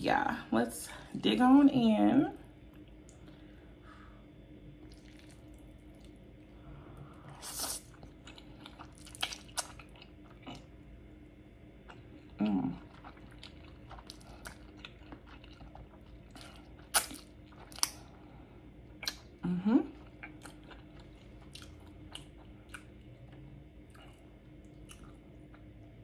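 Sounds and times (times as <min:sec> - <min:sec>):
wet mouth clicks and chewing: 0:07.6 - 0:10.7, 0:11.9 - 0:18.0, 0:19.0 - 0:19.3, 0:20.0 - 0:25.8
short hummed voice sound: 0:19.3 - 0:20.0.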